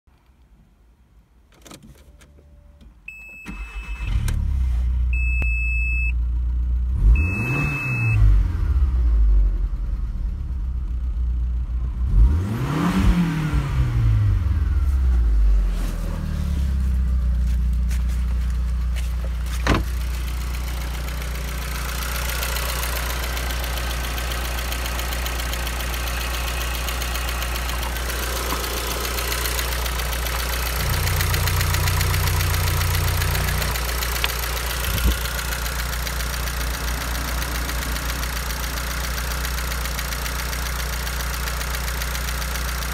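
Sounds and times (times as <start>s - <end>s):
car engine starting and idling: 1.4s - 42.9s
engine revving: 6.9s - 9.2s, 12.0s - 17.0s, 20.1s - 40.4s.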